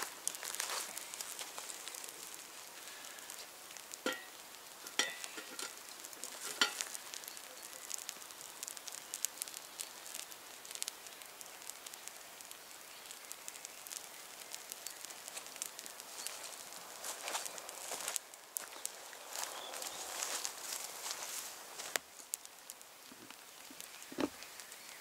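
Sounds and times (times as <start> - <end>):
campfire embers crackling and hissing: 0.0 - 25.0
metallic clinks of can handle: 4.0 - 5.7.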